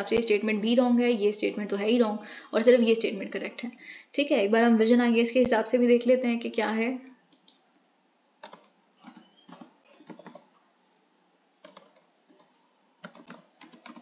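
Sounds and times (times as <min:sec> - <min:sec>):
faint computer keyboard typing: 0:08.4 - 0:10.6, 0:11.6 - 0:14.0.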